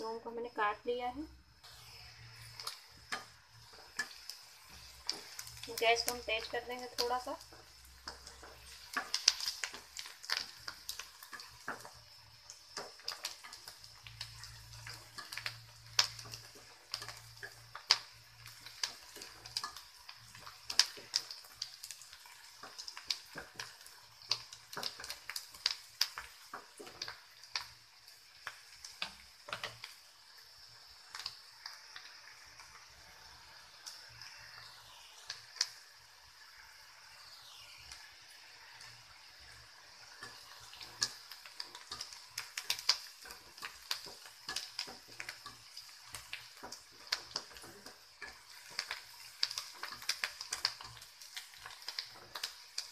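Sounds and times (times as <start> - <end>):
onions sizzling in oil: 0.0 - 52.9.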